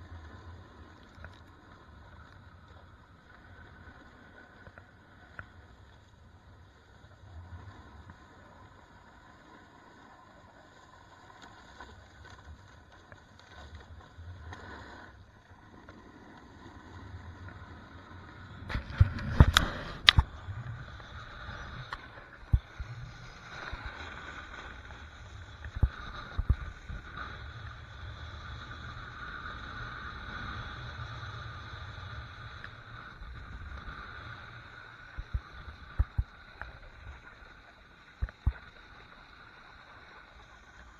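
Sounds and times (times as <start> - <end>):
snowboard scraping over snow: 13.5 - 36.6.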